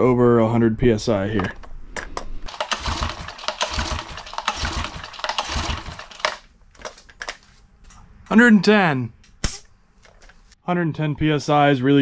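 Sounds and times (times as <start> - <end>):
engine turning over thumping: 2.5 - 6.4
recoil rope rasping: 2.5 - 6.4.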